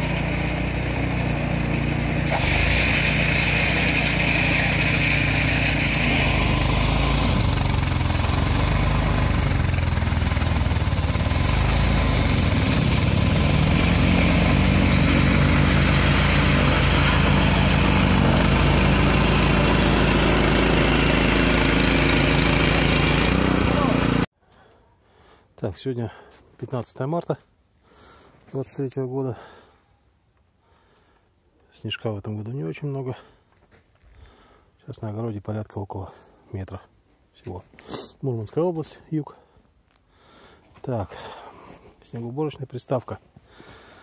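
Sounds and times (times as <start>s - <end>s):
snowblower engine droning: 0.0s - 24.3s.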